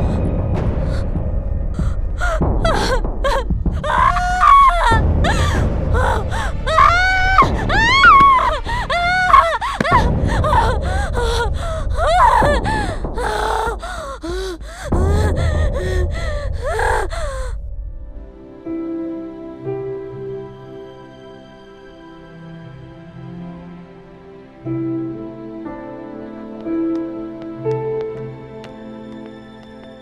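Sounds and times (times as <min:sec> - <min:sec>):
woman gasping: 0:01.8 - 0:17.6
woman wailing in distress: 0:02.2 - 0:13.8.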